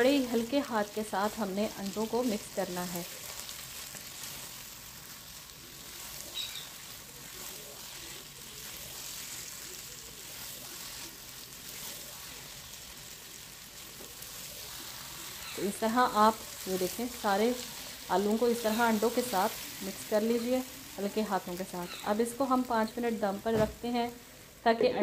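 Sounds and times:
spatula mixing in a pan: 0.0s - 24.7s
food sizzling in a frying pan: 0.0s - 25.0s.

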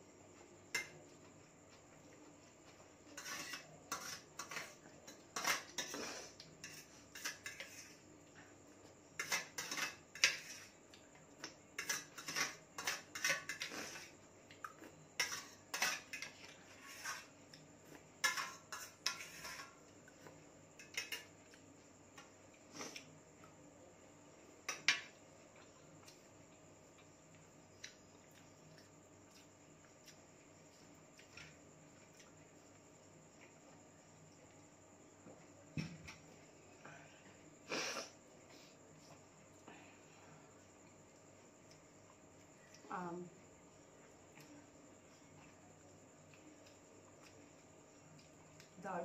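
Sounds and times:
fork scraping metal plate: 3.2s - 8.0s, 9.2s - 10.7s, 15.2s - 17.3s, 18.2s - 19.8s.

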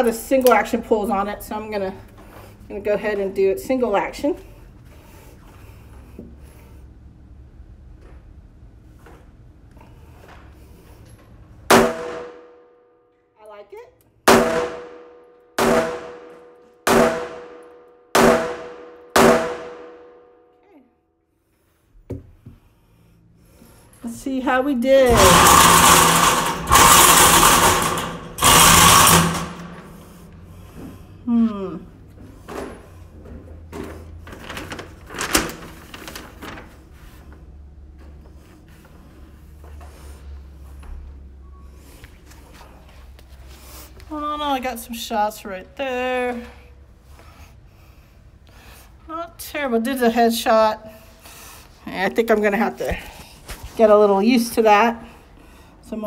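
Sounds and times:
revolver gunshots echoing: 14.3s - 15.0s, 15.6s - 16.3s, 16.9s - 17.6s, 18.2s - 20.1s.

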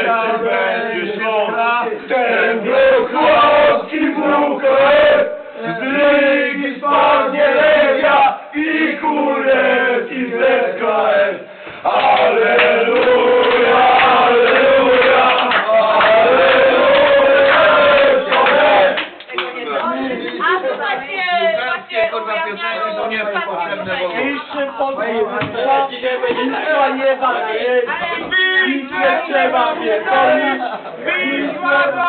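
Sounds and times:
men singing and chanting: 0.0s - 19.0s, 23.8s - 32.0s.

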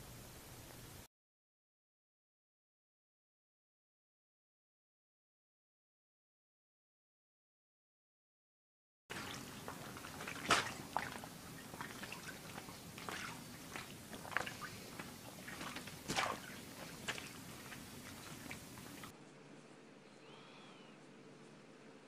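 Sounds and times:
cat walking on waterbed: 9.1s - 19.1s.

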